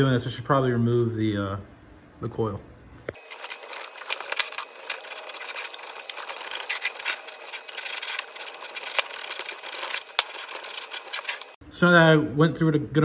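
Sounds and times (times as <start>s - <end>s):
gritty metal scraping: 3.2s - 11.6s.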